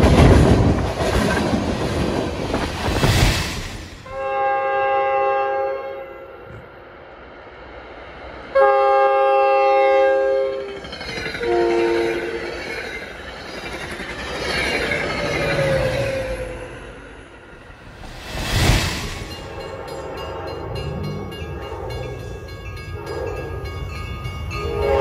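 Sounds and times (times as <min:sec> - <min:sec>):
train rushing past: 0:00.0 - 0:05.2, 0:06.1 - 0:25.0
locomotive air horn: 0:04.1 - 0:06.5, 0:08.6 - 0:10.7, 0:11.4 - 0:12.5, 0:24.6 - 0:25.0.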